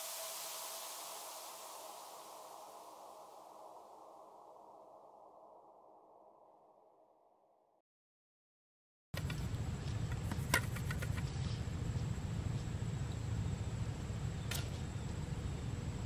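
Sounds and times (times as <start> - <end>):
steady low rumble: 9.2 - 16.0.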